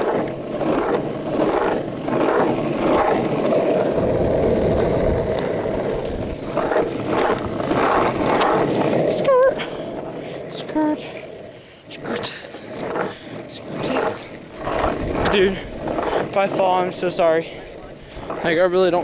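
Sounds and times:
longboard wheels rolling on asphalt: 0.0s - 19.0s.

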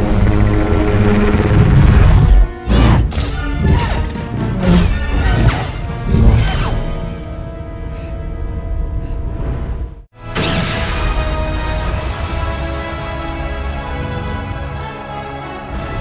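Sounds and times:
orchestral music: 0.0s - 16.0s.

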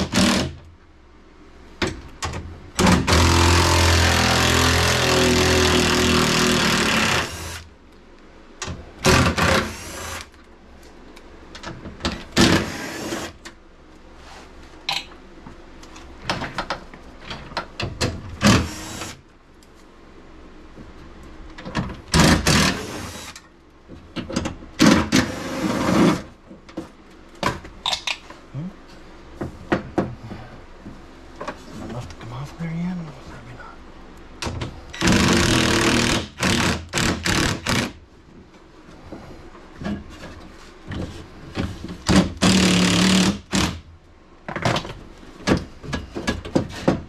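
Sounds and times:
cordless drill bursts: 3.1s - 7.6s, 18.4s - 19.2s, 35.0s - 37.9s, 42.4s - 43.8s.

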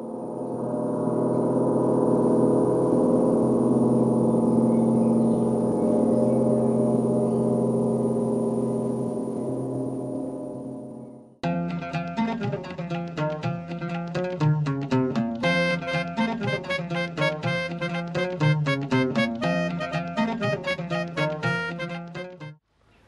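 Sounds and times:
ringing drone of steady tones: 0.0s - 11.4s.

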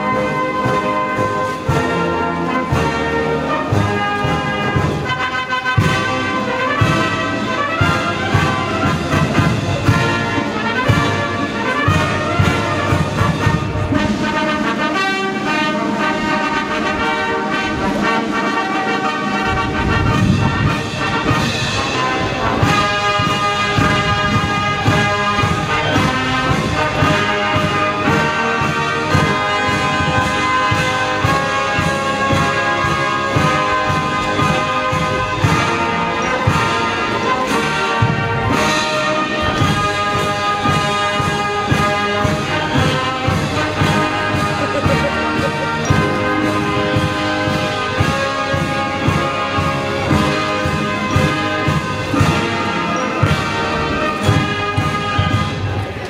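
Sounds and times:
steady drum beat: 0.0s - 55.8s
brass band playing: 0.0s - 56.0s.

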